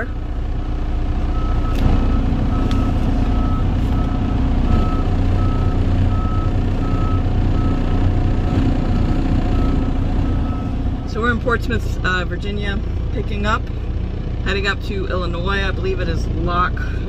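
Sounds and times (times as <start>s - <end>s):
diesel engine running: 0.0s - 17.0s
truck reversing alarm beeping: 1.2s - 11.6s.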